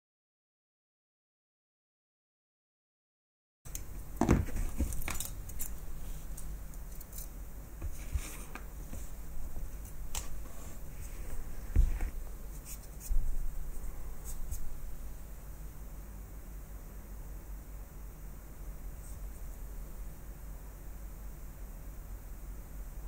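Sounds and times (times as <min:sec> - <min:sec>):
small metal clicks and scrapes: 0:04.8 - 0:07.4.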